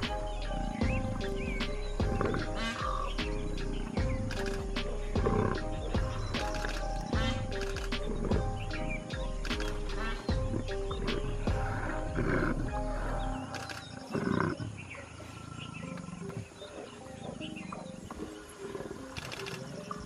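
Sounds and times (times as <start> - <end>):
leopard growling and snarling: 0.0 - 16.6.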